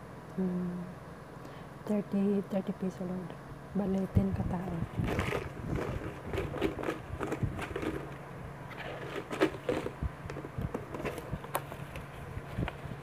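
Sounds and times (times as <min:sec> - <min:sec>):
faint steady hum: 0:00.0 - 0:13.0
plastic box rattling: 0:05.0 - 0:08.2, 0:08.8 - 0:11.8.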